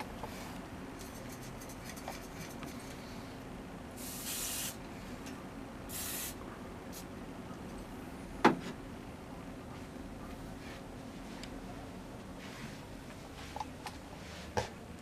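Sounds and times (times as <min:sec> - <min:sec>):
aerosol can spraying: 0:04.0 - 0:04.8, 0:05.9 - 0:06.4.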